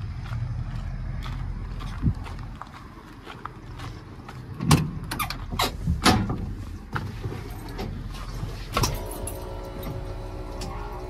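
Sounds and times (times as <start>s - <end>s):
low steady rumble: 0.0s - 11.0s
truck door clunks and clicks: 4.6s - 7.1s.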